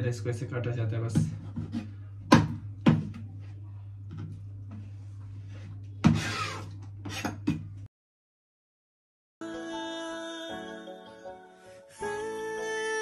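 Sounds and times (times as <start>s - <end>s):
low steady hum: 0.0s - 7.9s.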